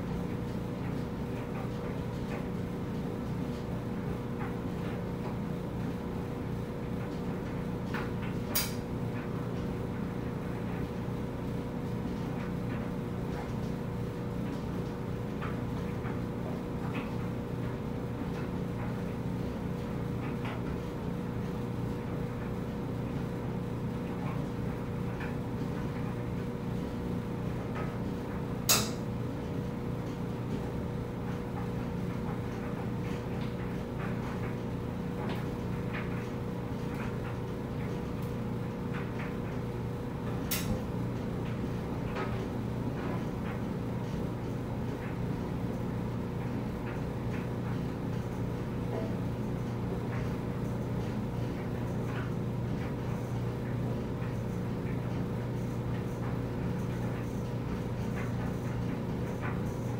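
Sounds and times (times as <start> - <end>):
clothes dryer running: 0.0 - 59.9.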